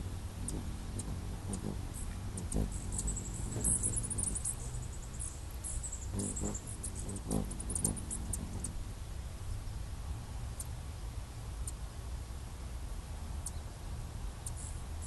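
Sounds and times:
steady low rumble: 0.0s - 15.0s
hummingbirds high squeaky chips: 0.4s - 8.8s.

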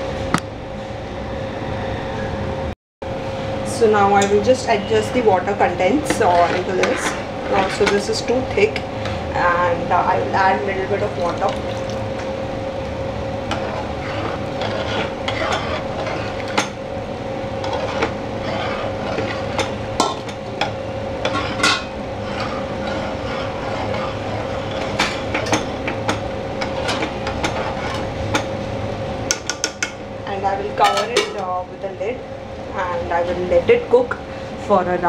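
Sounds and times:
steady hum: 0.0s - 35.0s
ladle scraping steel pot: 6.0s - 8.5s, 13.5s - 16.8s, 17.6s - 28.5s.

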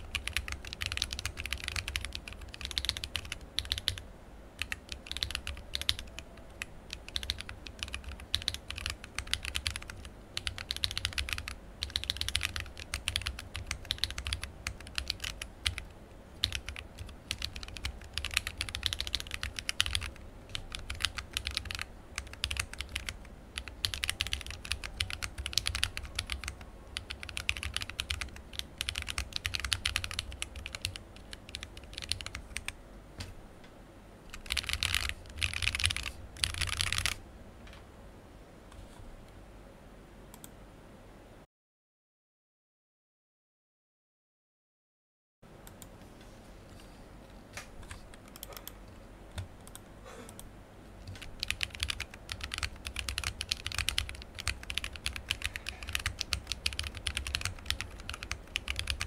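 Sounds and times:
mechanical keyboard typing: 0.0s - 4.0s, 4.6s - 32.8s, 34.3s - 37.2s, 47.9s - 49.8s, 51.0s - 59.0s.

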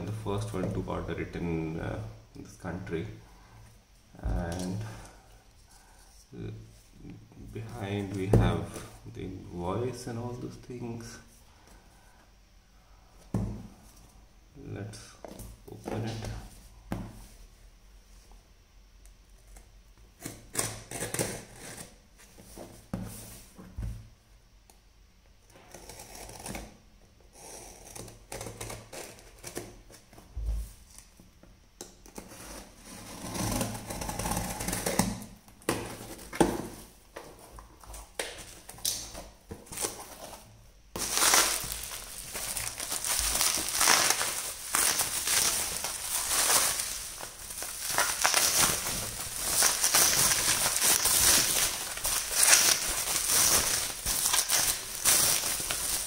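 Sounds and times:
bubble wrap crinkling: 36.0s - 56.0s.

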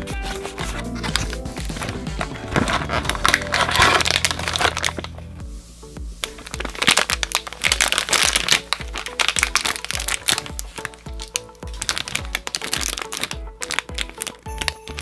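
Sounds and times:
crinkling and crackling: 0.0s - 5.3s, 6.2s - 15.0s
background music with beat: 0.0s - 15.0s.

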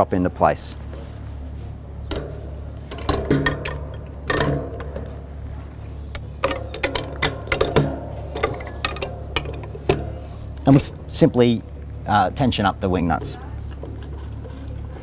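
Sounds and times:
steady low hum: 0.0s - 15.0s
metal parts clicking and knocking: 2.1s - 11.2s, 13.1s - 15.0s.

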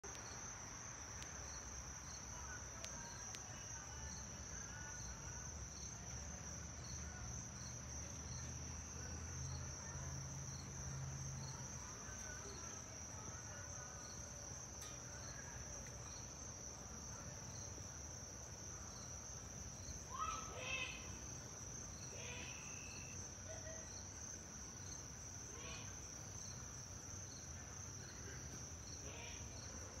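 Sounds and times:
high insect trill: 0.0s - 30.0s.

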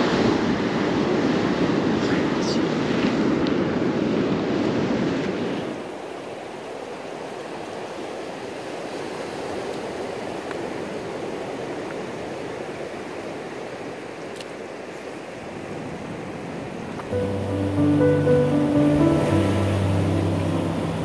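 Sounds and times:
ocean surf on beach: 0.0s - 21.0s.

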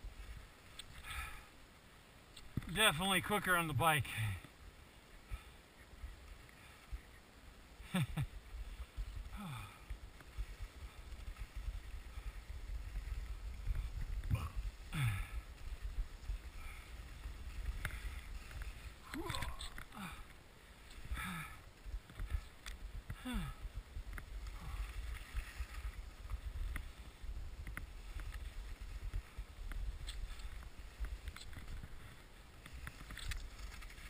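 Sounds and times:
skis scraping over snow: 0.0s - 1.4s, 2.6s - 23.1s, 23.7s - 34.0s
wind rumble on microphone: 8.2s - 19.8s, 21.0s - 34.0s.

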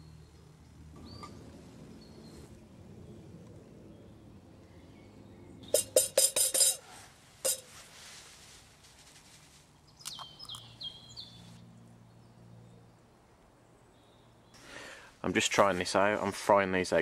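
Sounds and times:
frying pan clinking on stove: 5.8s - 6.8s.

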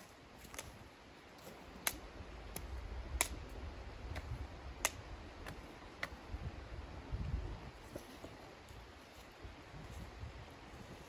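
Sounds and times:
dry twigs cracking: 1.4s - 6.2s.

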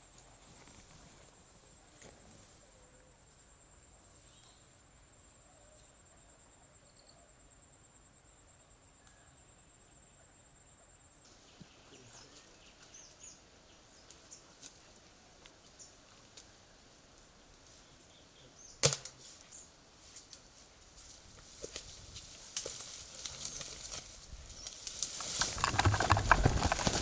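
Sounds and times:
insect trill: 0.0s - 27.0s
faint bird chirps: 4.0s - 7.5s, 8.9s - 14.6s, 17.8s - 18.8s
twigs snapping: 18.8s - 19.2s, 21.4s - 27.0s
leaves rustling in undergrowth: 19.1s - 27.0s.

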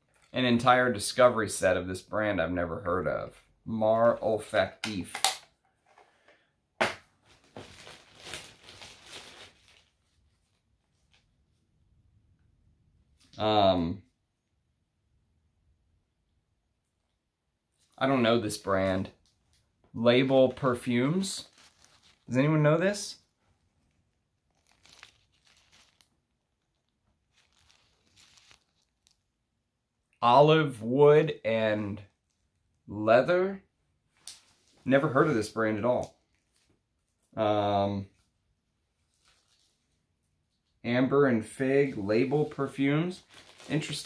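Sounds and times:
mesh bag crinkling and rustling: 7.2s - 11.3s, 20.2s - 29.3s, 39.0s - 40.0s, 41.9s - 44.0s.

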